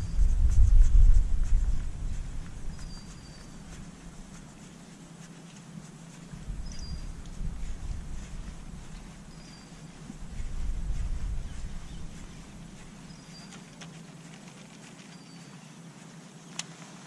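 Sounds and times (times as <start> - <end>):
low rumble: 0.0 - 4.4, 6.3 - 13.3
steady low hum: 0.0 - 17.0.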